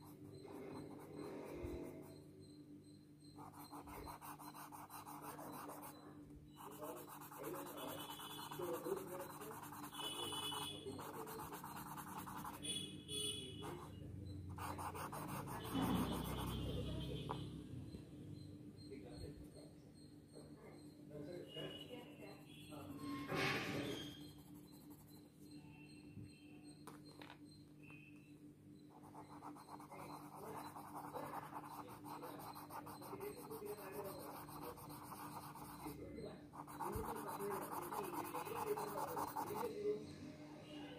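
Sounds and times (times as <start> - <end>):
blending tool rubbing on paper: 6.6 - 12.6, 29.1 - 36.0, 36.6 - 39.7.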